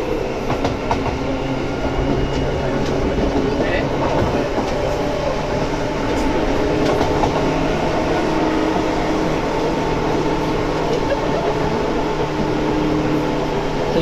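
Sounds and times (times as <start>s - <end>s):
wheels rumbling on rail: 0.0s - 14.0s
electric train motor whine: 4.3s - 14.0s.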